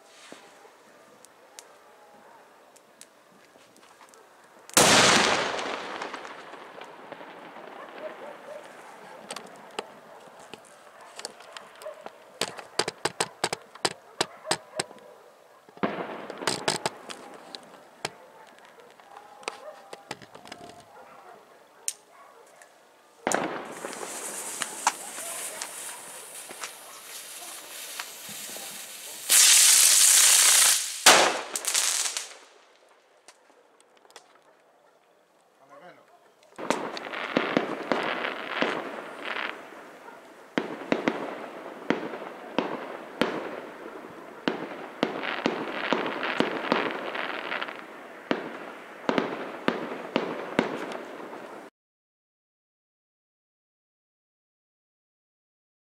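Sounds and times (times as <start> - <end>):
rapid firecracker cracks: 4.7 - 14.9, 15.8 - 20.9, 23.2 - 32.7, 36.6 - 51.6
firework bang: 4.8 - 8.2, 23.3 - 32.4, 36.6 - 39.7
firecracker bang echoing: 4.8 - 10.1, 15.8 - 18.2, 23.3 - 32.5, 36.6 - 51.6
small pops: 8.6 - 15.0, 15.7 - 20.8
firework hissing spray: 23.7 - 32.4.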